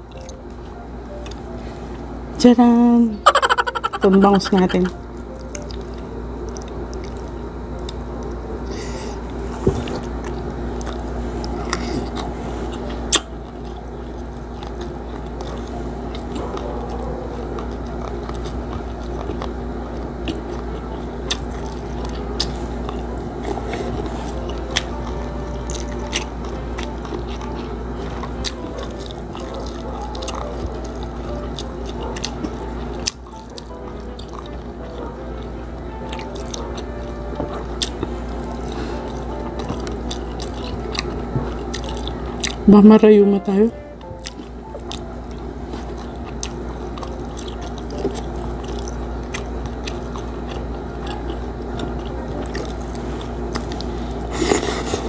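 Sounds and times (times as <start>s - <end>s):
steady low hum: 0.0s - 55.0s
chewing and biting food: 3.3s - 42.9s, 44.0s - 55.0s.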